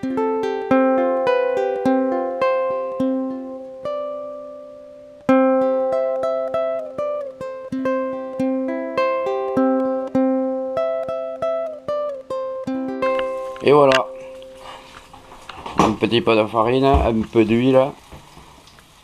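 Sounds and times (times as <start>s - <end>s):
plucked string instrument tune: 0.0s - 16.1s.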